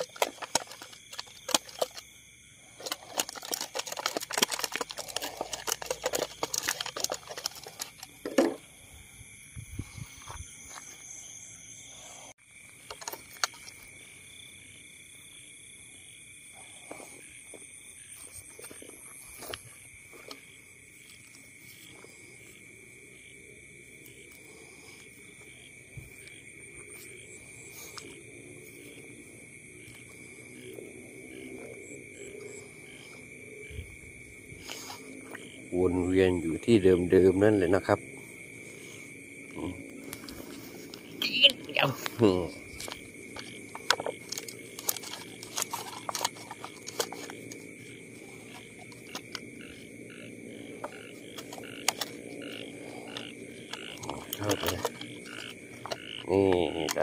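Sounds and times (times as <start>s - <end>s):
plastic bottle crackling: 0.0s - 2.0s, 2.7s - 8.6s, 42.8s - 47.7s
frogs croaking in chorus: 0.0s - 57.0s
insects trilling: 0.0s - 57.0s.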